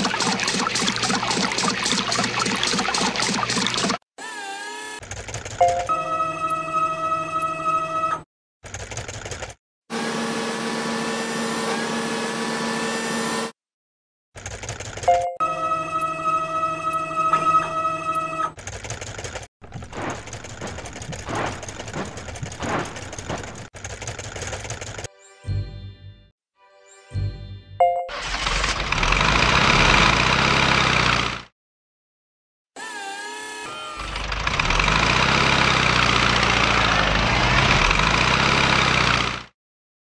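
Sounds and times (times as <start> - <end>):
cartoon engine hum: 0.0 - 4.0
soap gushing from nozzles: 0.0 - 4.0
cartoon car-wash machinery clatter: 0.0 - 4.1, 4.9 - 6.0, 8.6 - 13.0, 14.4 - 15.4, 17.0 - 25.1, 28.1 - 31.5, 33.8 - 39.6.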